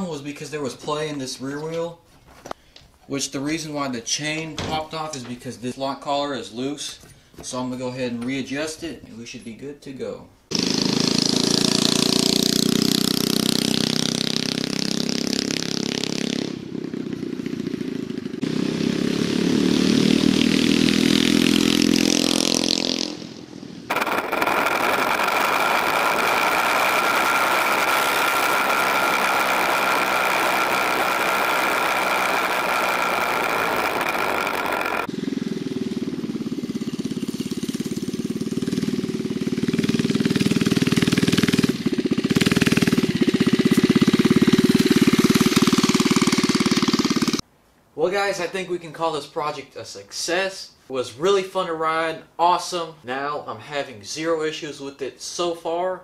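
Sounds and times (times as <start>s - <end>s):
small scooter engine running: 10.5s - 23.3s, 23.9s - 47.4s
engine whine: 10.5s - 47.4s.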